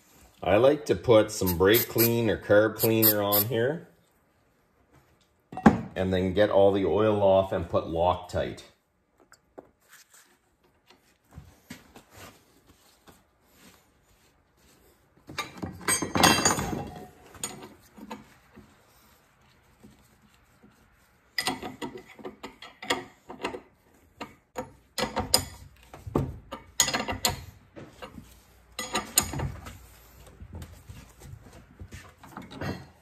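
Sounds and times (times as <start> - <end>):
rag rubbing over metal: 1.4 - 3.6
metal clinks and knocks: 15.3 - 18.3, 26.4 - 29.6.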